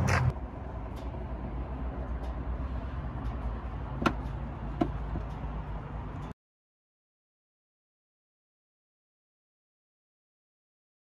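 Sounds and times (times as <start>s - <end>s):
car engine idling: 0.0s - 6.3s.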